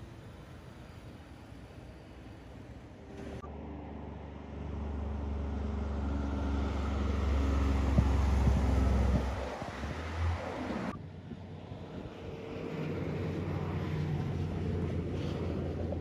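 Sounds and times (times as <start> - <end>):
diesel truck driving past: 0.0 - 16.0
distant truck passing: 0.0 - 16.0
tyre noise on road: 4.8 - 10.9.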